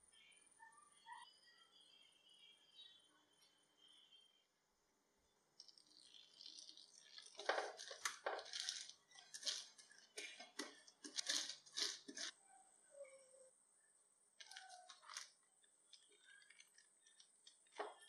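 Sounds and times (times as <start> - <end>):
plastic sheet crinkling: 5.6 - 12.3, 14.4 - 18.0.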